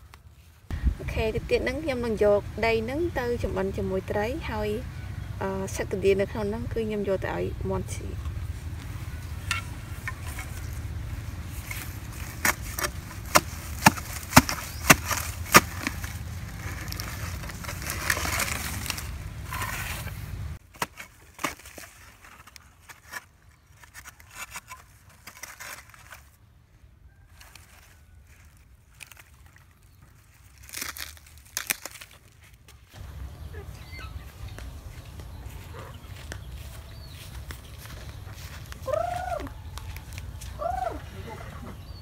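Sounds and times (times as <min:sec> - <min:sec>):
scrapes and crackles: 0:08.8 - 0:26.4
sharp strikes digging clay soil: 0:11.5 - 0:26.2.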